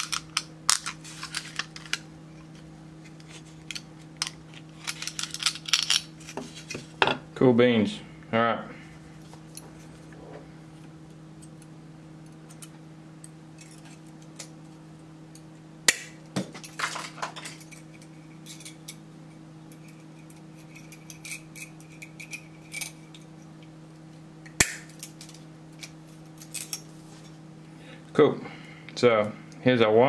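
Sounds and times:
low electrical hum: 0:00.0 - 0:30.0
metal tools clicking and clinking: 0:03.6 - 0:06.1.

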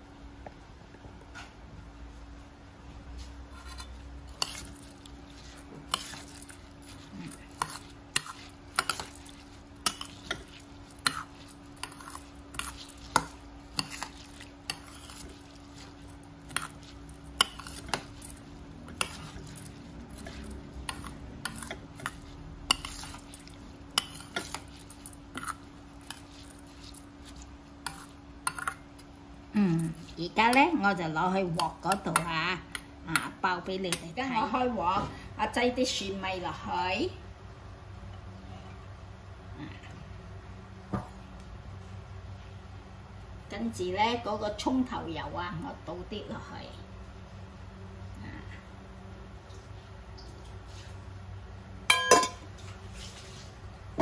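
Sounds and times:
metal spoon clinking bowl: 0:51.9 - 0:52.5.

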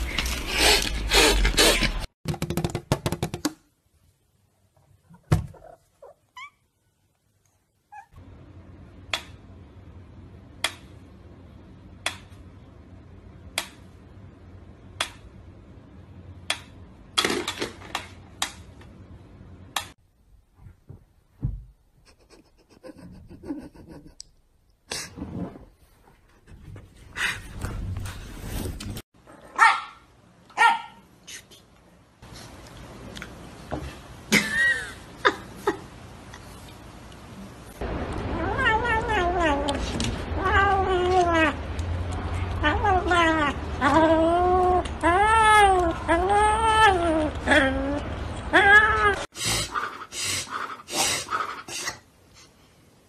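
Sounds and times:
knocks and thumps: 0:02.3 - 0:03.6, 0:05.2 - 0:05.6, 0:20.6 - 0:21.8.

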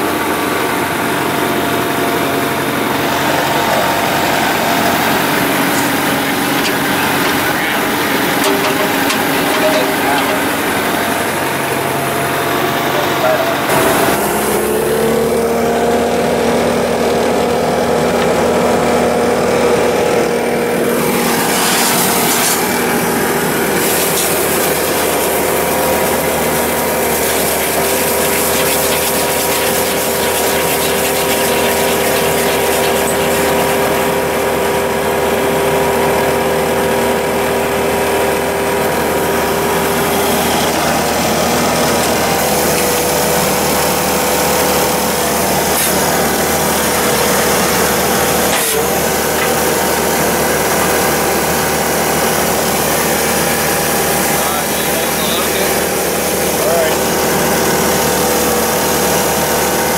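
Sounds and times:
drill engine running: 0:00.0 - 0:59.9
steady mechanical whine: 0:02.7 - 0:15.4.

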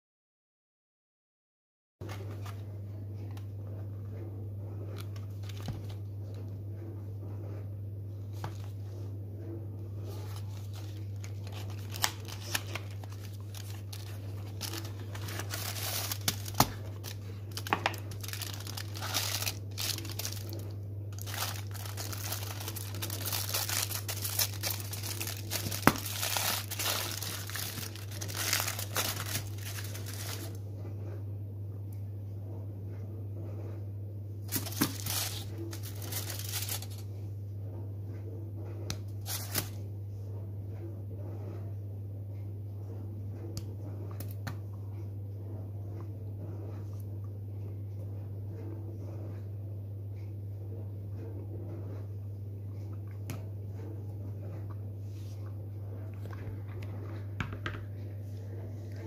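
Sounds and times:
foil wrapper crinkling and tearing: 0:10.4 - 0:30.6, 0:34.5 - 0:37.0, 0:39.2 - 0:39.8
cardboard box being opened: 0:11.4 - 0:20.4.

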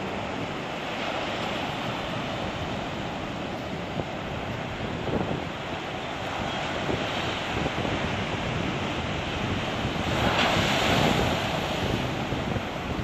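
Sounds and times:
surf washing over rocks: 0:00.0 - 0:13.0
wind buffeting microphone: 0:00.0 - 0:13.0
wave crashing: 0:06.9 - 0:13.0.

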